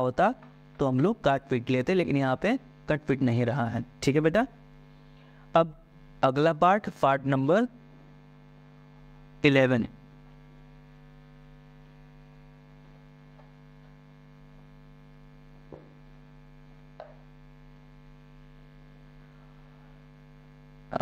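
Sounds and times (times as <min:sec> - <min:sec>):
electrical mains hum: 0:00.0 - 0:21.0
faint taps: 0:15.7 - 0:16.0.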